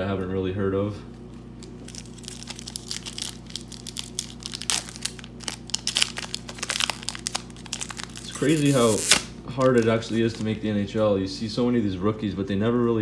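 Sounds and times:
wrapper being torn and crinkled: 1.6s - 10.6s.

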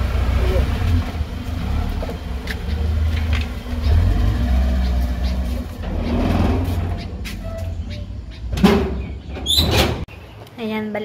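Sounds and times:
car engine at low revs: 0.0s - 6.5s.

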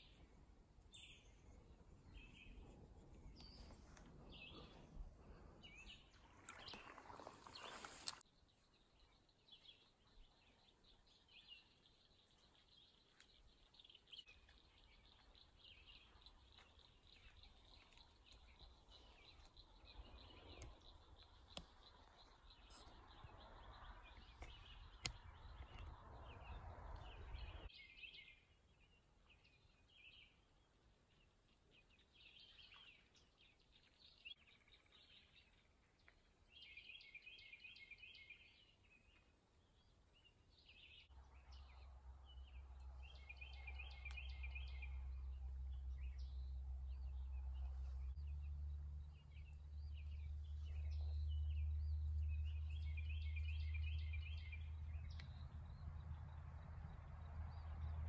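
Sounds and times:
songbird singing: 0.0s - 58.0s
bird chirps: 36.5s - 58.0s.

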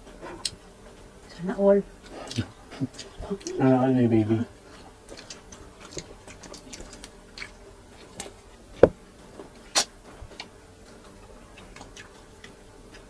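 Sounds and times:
chewing and lip smacks: 2.2s - 3.6s, 4.8s - 8.4s, 11.4s - 13.0s.

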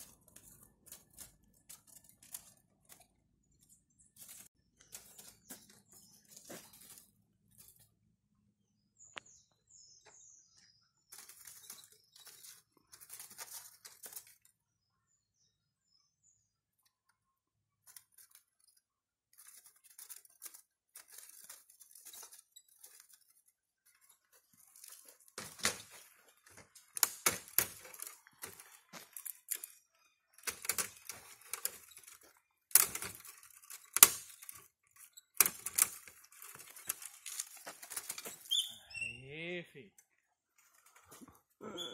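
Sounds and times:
wooden cage scraping and rattling: 0.0s - 7.9s, 11.2s - 14.5s, 19.3s - 39.0s
faint high chirps: 38.4s - 39.6s.

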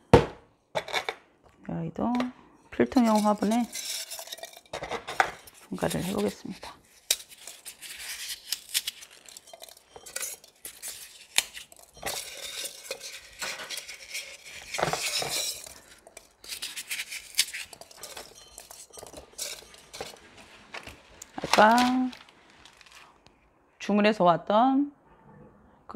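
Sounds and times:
clinks and scrapes on clay pot: 2.9s - 20.9s
paper rustling: 3.0s - 23.2s.

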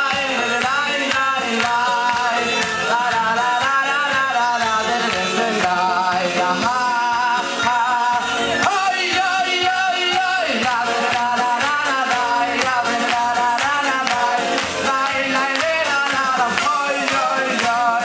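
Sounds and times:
band with steady beat: 0.0s - 18.0s
person singing a melody: 0.0s - 18.0s.

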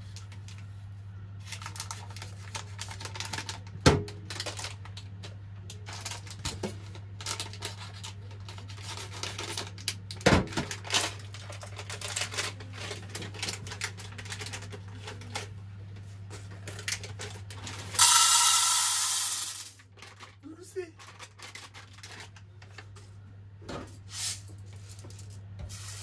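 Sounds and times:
plastic bag crinkling: 1.4s - 5.0s, 5.8s - 15.5s, 19.8s - 22.9s.

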